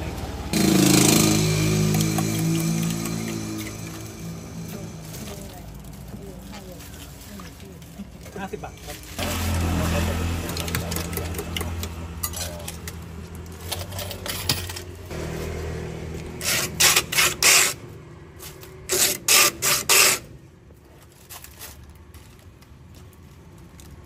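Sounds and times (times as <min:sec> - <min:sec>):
ice scraping on metal tray: 0:16.4 - 0:17.8, 0:18.5 - 0:20.3.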